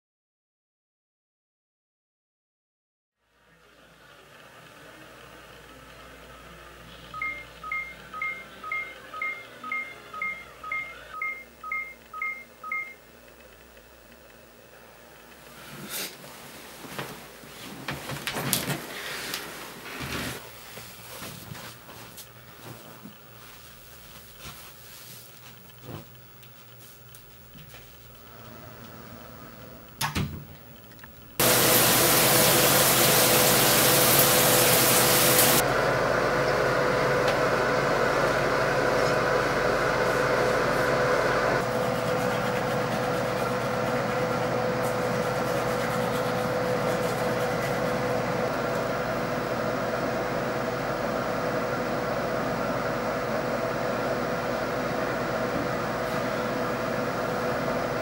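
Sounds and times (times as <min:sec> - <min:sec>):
loud steady hiss with hum: 0:29.9 - 0:35.6.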